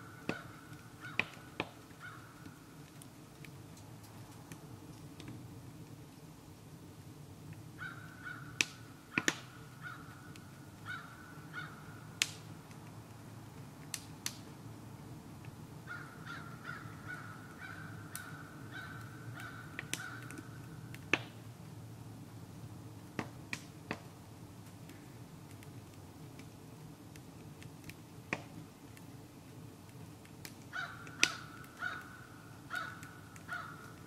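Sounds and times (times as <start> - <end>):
low fire rumble: 0.0 - 34.0
wood fire crackling and popping: 0.0 - 34.0
bird calling: 30.7 - 34.0.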